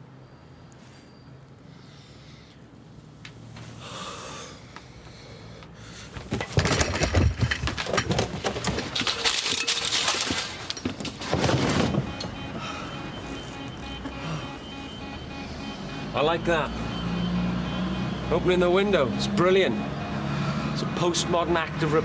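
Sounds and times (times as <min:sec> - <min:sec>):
window rattling and scraping: 0:06.2 - 0:12.4.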